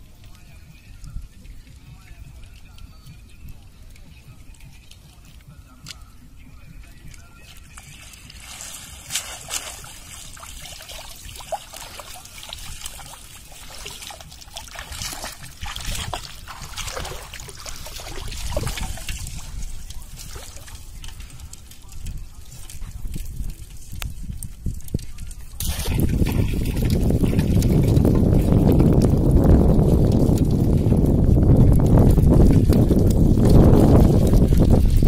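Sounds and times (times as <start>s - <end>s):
water splashing and sloshing: 7.1s - 35.0s
water draining and dripping: 7.8s - 23.2s, 25.6s - 31.0s.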